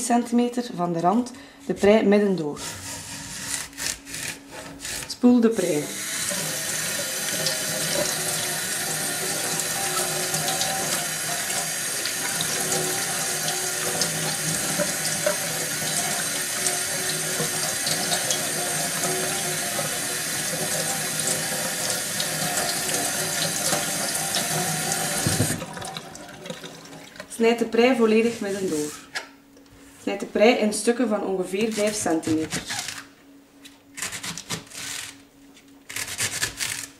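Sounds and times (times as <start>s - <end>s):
tap water running into a sink: 6.2s - 27.3s.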